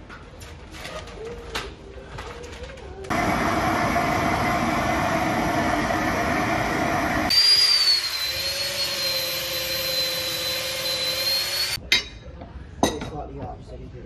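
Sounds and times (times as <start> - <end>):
electric drill boring into wood: 7.3 - 11.8.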